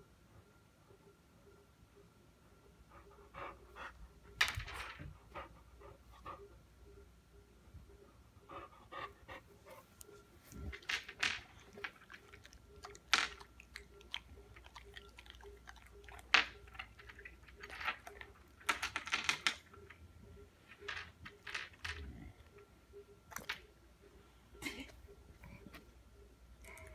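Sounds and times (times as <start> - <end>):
pebbles clacking against dog's teeth: 10.6 - 20.0
pebbles clicking on tabletop: 10.7 - 15.4, 16.0 - 20.0, 20.7 - 22.2.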